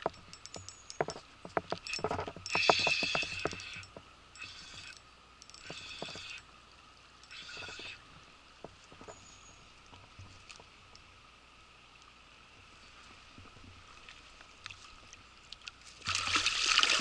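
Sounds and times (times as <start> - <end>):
spinning reel whirring: 0.0 - 6.5, 7.2 - 8.0.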